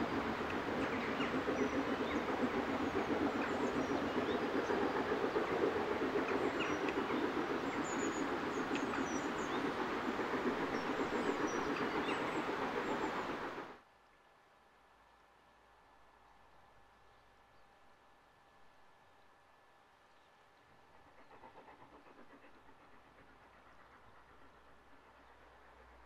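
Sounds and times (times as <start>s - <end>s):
steam locomotive exhaust: 0.0s - 13.7s.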